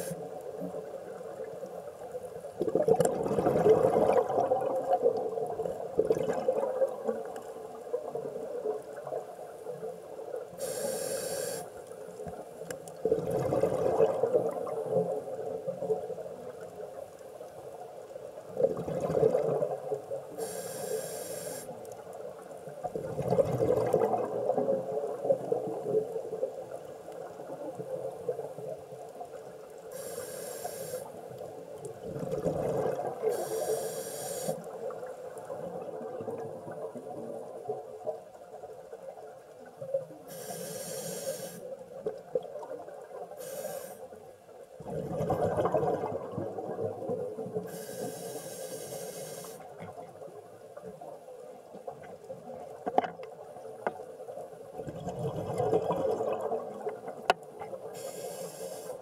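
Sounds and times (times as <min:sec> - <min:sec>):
gurgling exhaled bubbles: 0:02.6 - 0:07.3, 0:13.0 - 0:16.0, 0:18.5 - 0:20.1, 0:22.8 - 0:26.1, 0:31.9 - 0:33.4, 0:44.8 - 0:47.7, 0:54.7 - 0:57.3
regulator hissing inhales: 0:10.6 - 0:11.7, 0:20.4 - 0:21.7, 0:29.9 - 0:31.2, 0:33.3 - 0:34.6, 0:40.3 - 0:41.7, 0:43.4 - 0:44.1, 0:47.7 - 0:49.6, 0:58.0 - 0:59.0.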